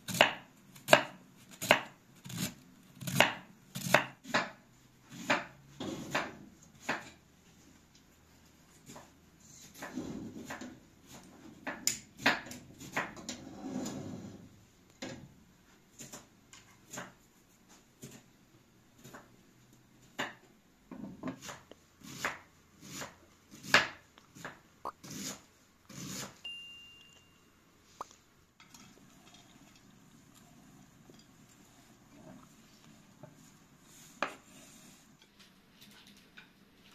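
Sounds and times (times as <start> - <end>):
knife chopping on wooden board: 0.1 - 7.2, 9.8 - 13.2, 21.0 - 25.4.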